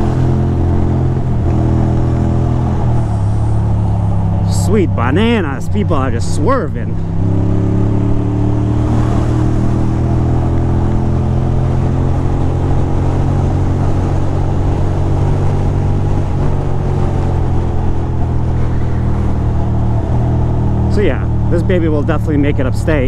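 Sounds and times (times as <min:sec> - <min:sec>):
motorcycle engine cruising: 0:00.0 - 0:23.0.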